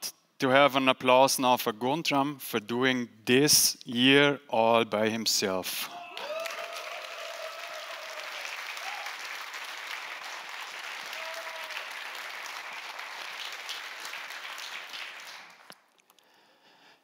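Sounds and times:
audience applauding: 6.1s - 15.8s.

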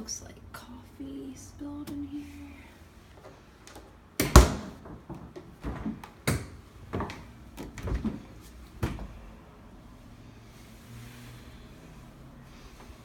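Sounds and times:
doors knocking and clunking: 4.2s - 9.2s.

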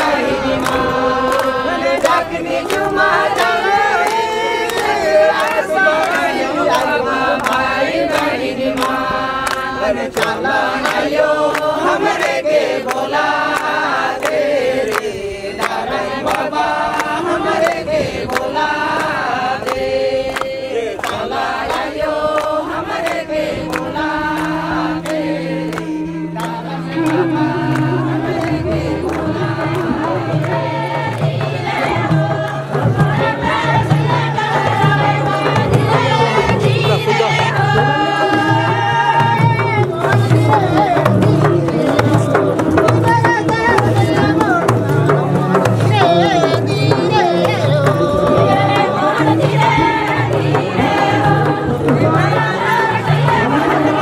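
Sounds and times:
group singing in chorus: 0.0s - 54.0s
hand claps: 0.0s - 54.0s
low steady note: 23.4s - 32.8s.

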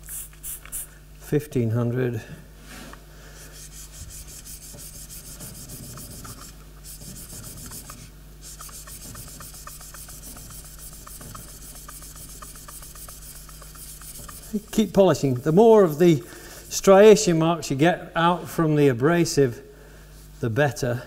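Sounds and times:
chisel scraping on abrasive paper: 3.6s - 15.6s.

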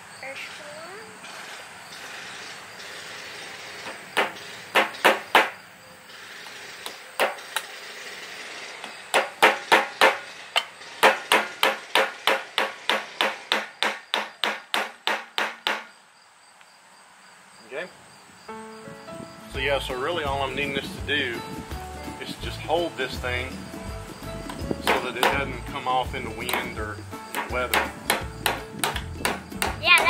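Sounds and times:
hammer tapping nails into metal: 9.1s - 15.9s, 24.4s - 25.6s, 26.4s - 30.0s.

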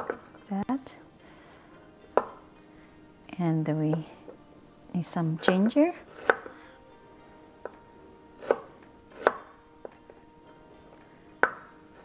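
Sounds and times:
knife striking cutting board: 8.4s - 9.5s.

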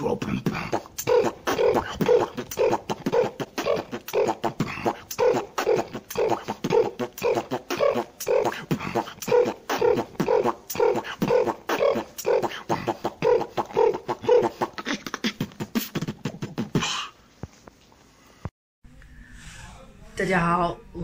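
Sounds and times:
man beatboxing: 0.0s - 17.2s.

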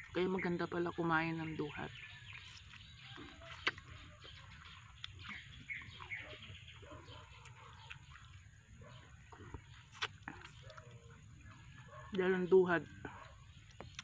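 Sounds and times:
lip smacks and sucking: 2.3s - 6.2s, 7.4s - 8.5s, 9.3s - 11.5s, 13.7s - 14.0s
mouth eating sounds: 2.4s - 11.2s, 13.7s - 14.0s.

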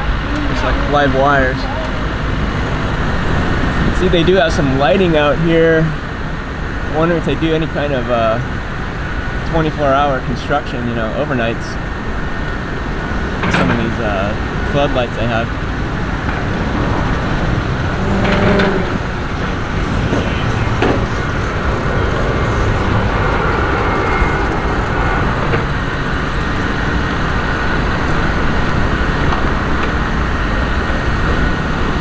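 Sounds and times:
construction machinery: 0.0s - 32.0s
road traffic rumble: 0.0s - 32.0s.

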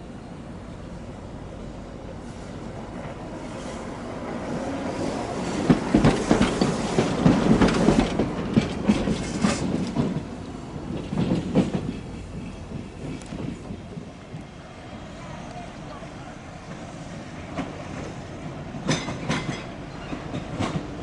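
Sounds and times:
streetcar wheels clacking over rail joints: 5.2s - 14.5s, 17.5s - 21.0s.

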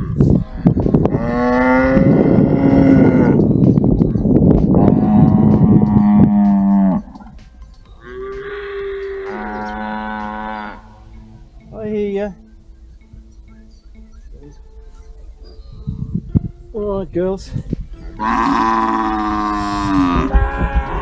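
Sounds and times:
cattle mooing: 0.0s - 3.4s, 4.8s - 7.3s, 8.0s - 11.0s, 18.2s - 21.0s.

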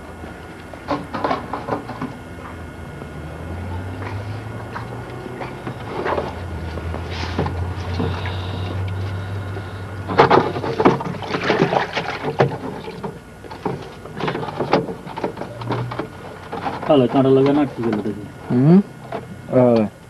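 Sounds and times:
fish thrashing: 5.0s - 16.9s
water splashing in barrel: 10.2s - 13.9s.

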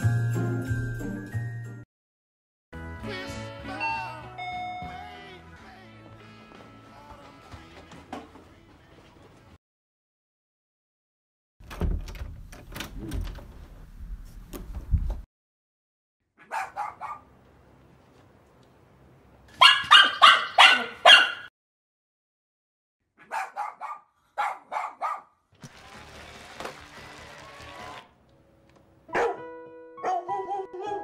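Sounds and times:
dogs barking: 16.4s - 17.3s, 19.5s - 21.5s, 23.2s - 25.3s, 29.1s - 31.0s.

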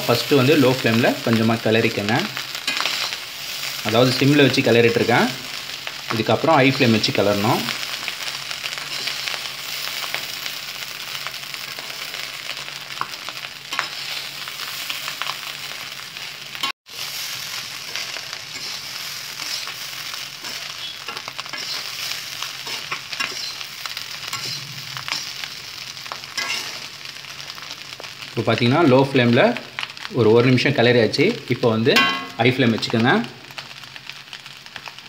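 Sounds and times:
fried rice sizzling in a wok: 0.0s - 35.0s
ladle stirring and scraping: 17.8s - 25.5s.

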